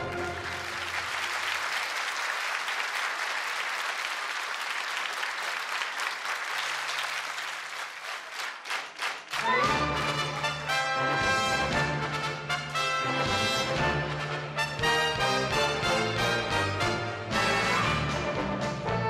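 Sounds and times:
audience clapping: 0.0 - 10.8.

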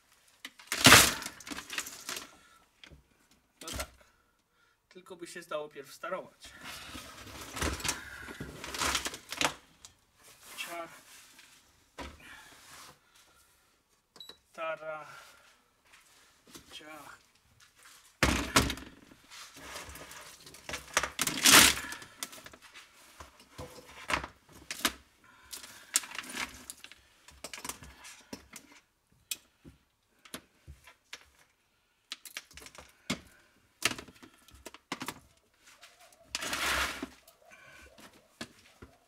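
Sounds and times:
cables clattering into plastic crate: 0.4 - 2.3, 6.7 - 9.6, 18.2 - 22.6, 23.4 - 28.8, 36.3 - 37.2.

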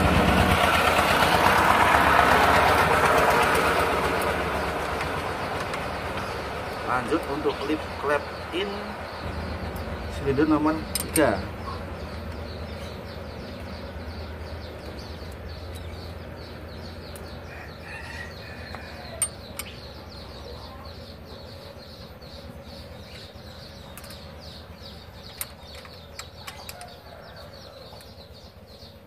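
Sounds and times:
birds chirping: 0.0 - 29.0
sharp metal tool clicks: 10.9 - 11.3, 19.2 - 19.8.

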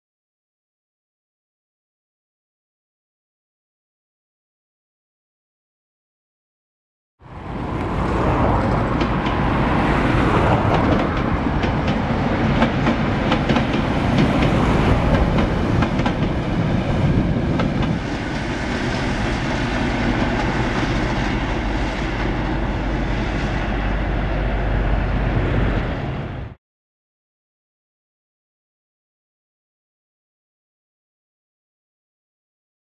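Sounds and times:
diesel train engine rumble: 7.2 - 26.6
wheels clicking over rail joints: 7.8 - 18.5.

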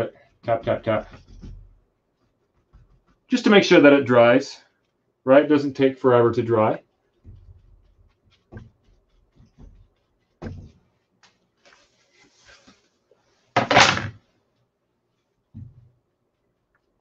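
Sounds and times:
paper towel dabbing canvas: 0.0 - 5.0, 5.8 - 13.6.

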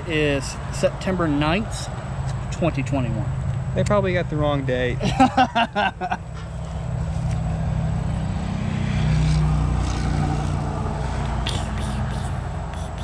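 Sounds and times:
low engine drone: 5.0 - 13.0.

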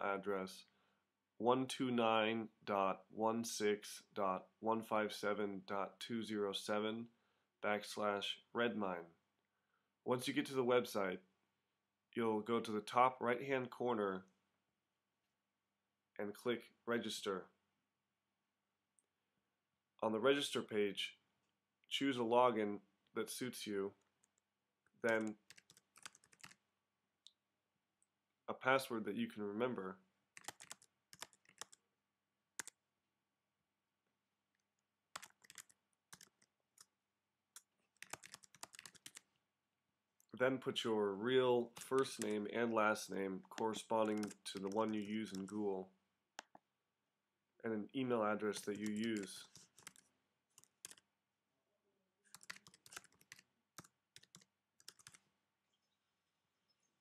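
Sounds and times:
keyboard typing: 25.0 - 26.6, 30.4 - 31.8, 32.6 - 32.8, 35.1 - 36.9, 37.6 - 39.3, 41.7 - 42.4, 43.4 - 45.6, 48.5 - 51.0, 52.3 - 55.2.

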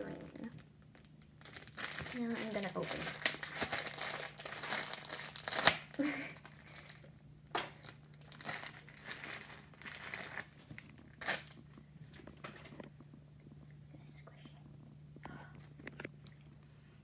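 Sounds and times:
plastic packaging crinkling: 0.1 - 13.0.

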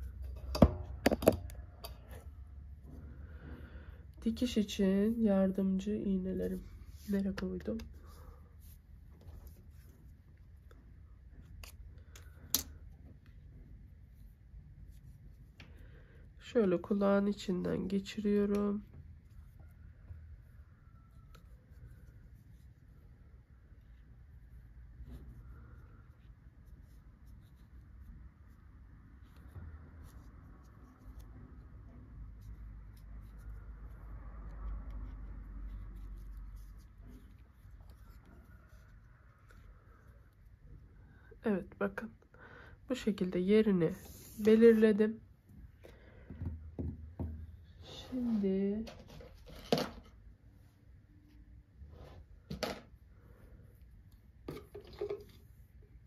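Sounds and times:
hands rustling yarn: 0.0 - 42.1, 43.0 - 47.1.

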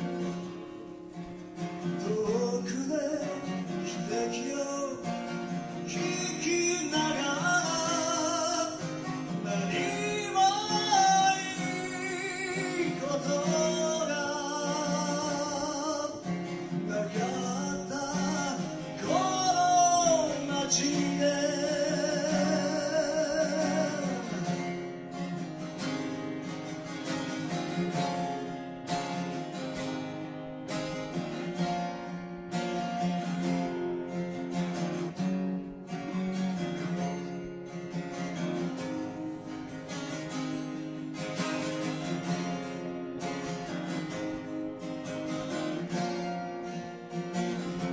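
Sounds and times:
acoustic guitar strumming: 0.0 - 47.9
man singing: 1.8 - 25.0.

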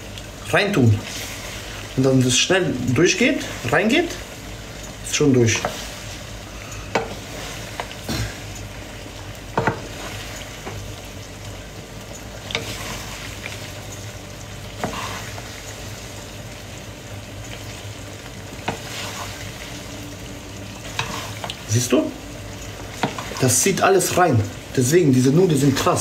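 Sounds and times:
pasta sizzling in a pan: 0.0 - 26.0
utensils knocking on a pan: 6.9 - 7.2.

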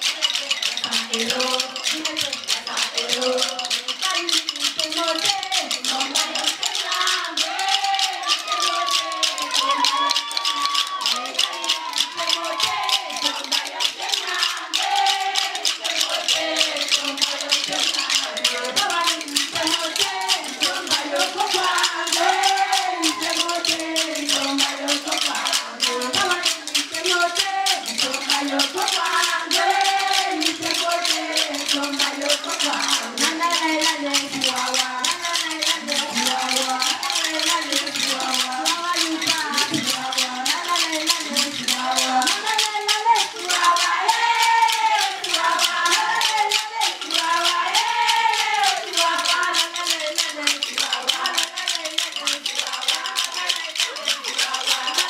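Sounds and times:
fast steady percussion: 0.0 - 55.0
shakers: 0.0 - 55.0
women singing together: 0.0 - 55.0
handclaps: 6.7 - 14.3.

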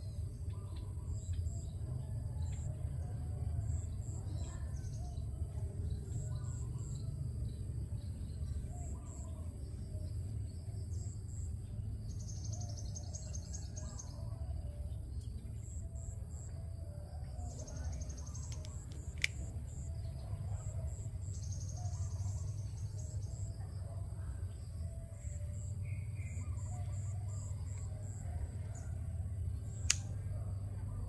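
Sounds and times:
steady low rumble: 0.0 - 31.0
sharp click: 18.4 - 19.7, 29.7 - 30.3.

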